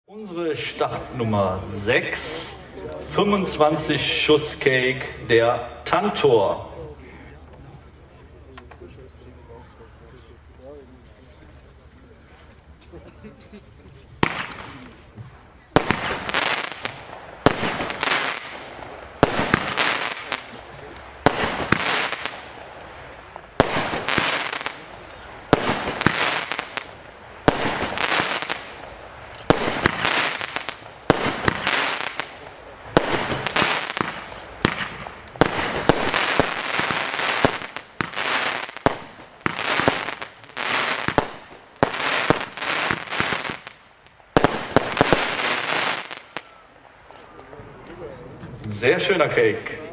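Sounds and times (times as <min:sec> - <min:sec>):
firework cake bangs: 0:14.2 - 0:14.8, 0:15.8 - 0:20.6, 0:21.2 - 0:22.6, 0:23.5 - 0:43.8.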